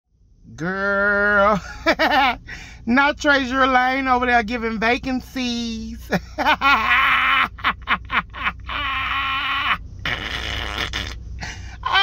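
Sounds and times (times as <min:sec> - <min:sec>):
person making wordless vocal sounds: 0:00.5 - 0:01.6, 0:09.0 - 0:12.0.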